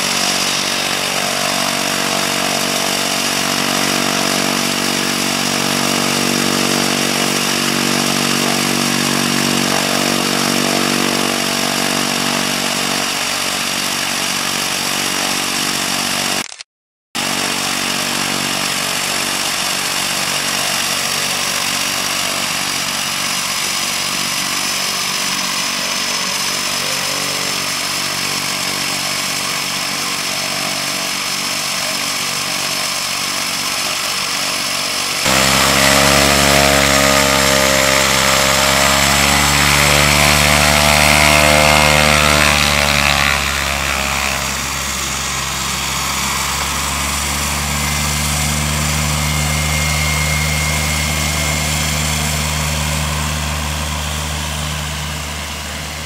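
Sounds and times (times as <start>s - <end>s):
turboprop engine running: 0.0s - 16.4s, 17.2s - 56.0s.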